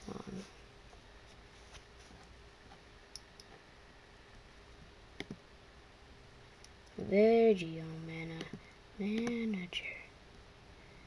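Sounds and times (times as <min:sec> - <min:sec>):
computer mouse clicks: 0:02.7 - 0:03.6, 0:05.2 - 0:05.4, 0:08.4 - 0:09.4.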